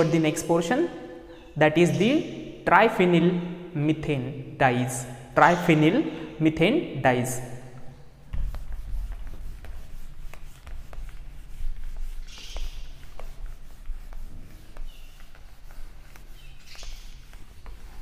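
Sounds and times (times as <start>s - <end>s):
duster wiping a whiteboard: 7.6s - 18.0s.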